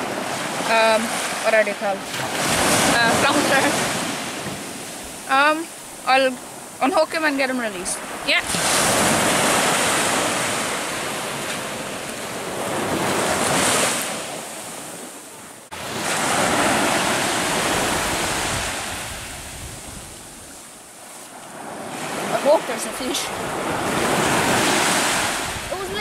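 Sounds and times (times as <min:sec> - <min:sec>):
surf breaking on beach: 0:00.0 - 0:07.0, 0:07.7 - 0:20.7, 0:21.5 - 0:26.0
wind buffeting microphone: 0:15.8 - 0:26.0.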